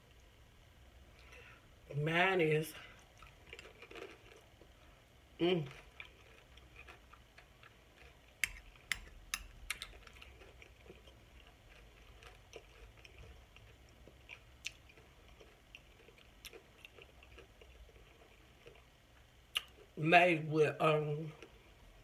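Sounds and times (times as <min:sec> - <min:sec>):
close-up chewing: 0:02.8 - 0:20.0
wet mouth clicks: 0:08.4 - 0:10.1.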